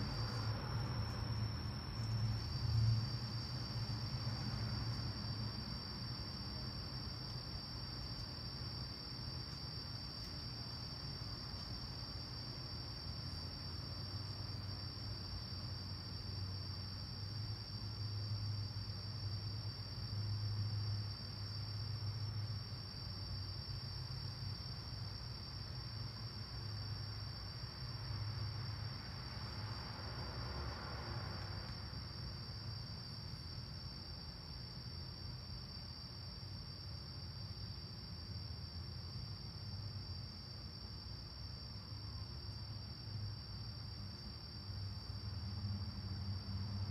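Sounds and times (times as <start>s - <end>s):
distant car passing: 0.0s - 7.0s, 28.4s - 32.7s
low uneven rumble: 0.0s - 8.5s
crickets trilling: 0.0s - 46.9s.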